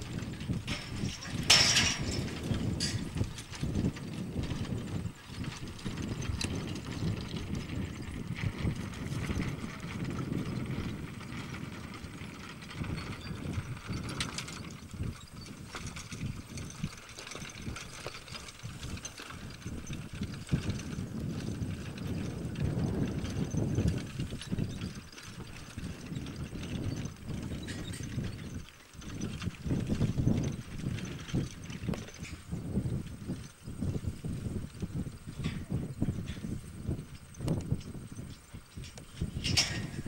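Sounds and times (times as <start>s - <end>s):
horse hooves stepping on field: 0.0s - 40.0s
knocks and clanks of wooden frame: 0.6s - 3.8s, 39.2s - 40.0s.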